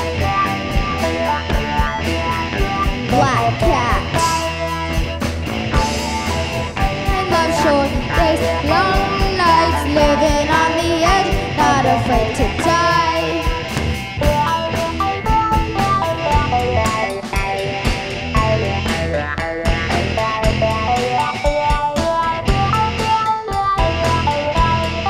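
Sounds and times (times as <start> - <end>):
rock band playing: 0.0 - 25.0
sliding lead guitar line: 0.0 - 25.0.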